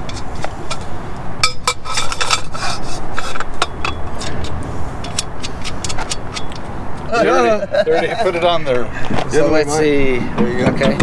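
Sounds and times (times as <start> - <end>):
steel tubing scraping and clicking: 0.0 - 7.1.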